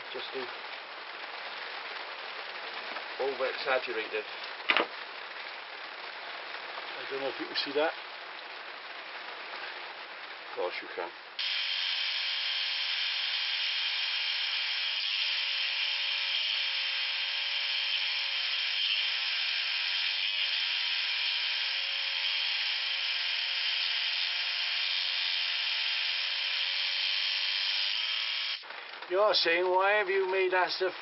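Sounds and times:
scroll saw cutting wood: 0:11.4 - 0:28.6.

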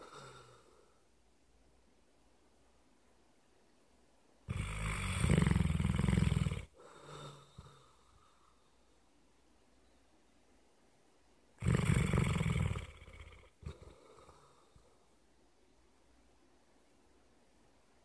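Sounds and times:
dog snoring: 0:00.0 - 0:00.8, 0:04.5 - 0:08.4, 0:11.6 - 0:15.0.

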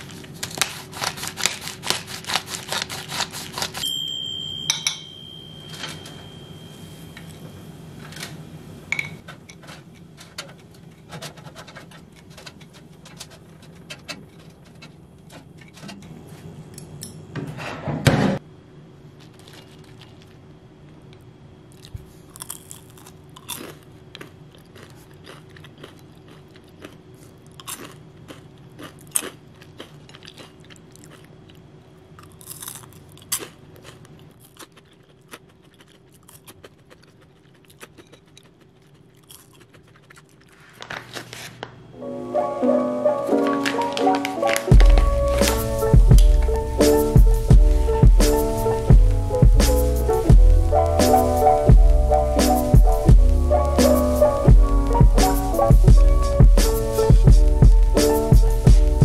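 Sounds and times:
crunchy fries being chewed: 0:00.0 - 0:03.8, 0:19.1 - 0:20.5, 0:21.1 - 0:41.6.

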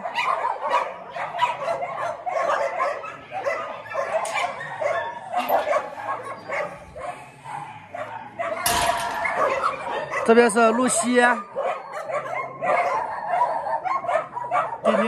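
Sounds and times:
dogs barking and yipping: 0:00.0 - 0:15.0.

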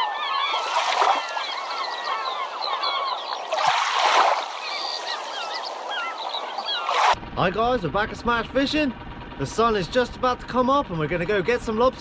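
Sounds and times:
birds chirping: 0:00.0 - 0:07.2.

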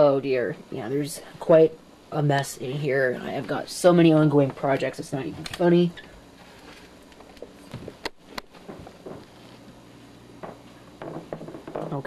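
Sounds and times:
soft footsteps: 0:06.4 - 0:12.0.

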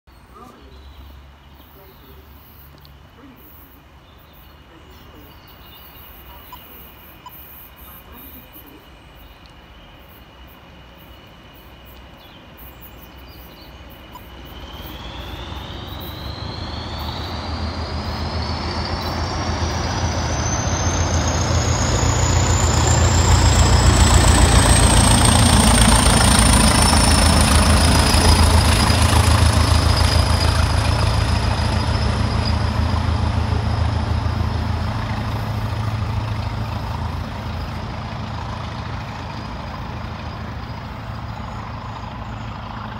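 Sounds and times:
diesel locomotive engine rumble: 0:00.2 - 0:42.9
turbocharger whistle: 0:14.1 - 0:34.9.

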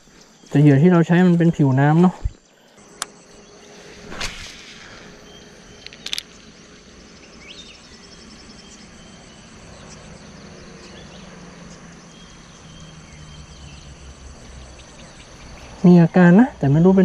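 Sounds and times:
bird chirps: 0:00.0 - 0:16.2
insects chirping: 0:00.0 - 0:17.0
sharp clicks: 0:05.8 - 0:06.4.

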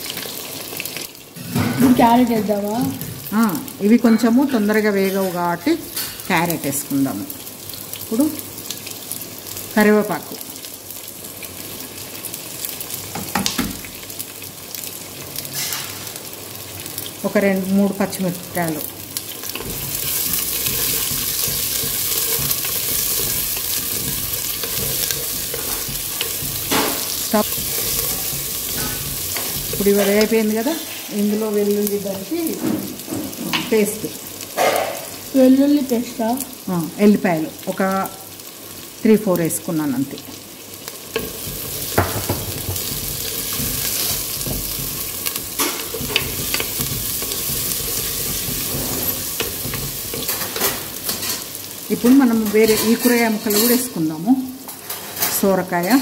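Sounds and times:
vegetables sizzling in oil: 0:00.0 - 0:56.0
wooden spatula scraping pot: 0:19.4 - 0:31.1, 0:41.1 - 0:51.5.

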